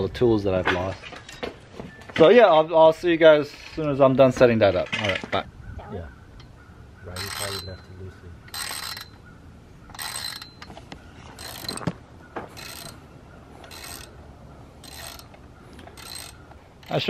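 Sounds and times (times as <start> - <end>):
ratchet wrench clicking: 8.5 - 9.2, 9.9 - 10.7, 11.4 - 11.9, 12.6 - 13.0, 13.6 - 14.2, 14.8 - 15.4, 16.0 - 17.0.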